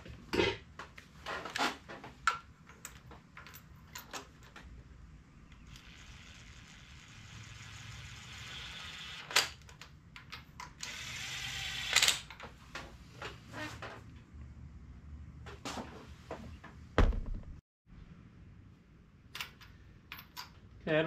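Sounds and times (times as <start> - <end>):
cordless drill spinning: 5.6 - 9.6, 10.8 - 12.2.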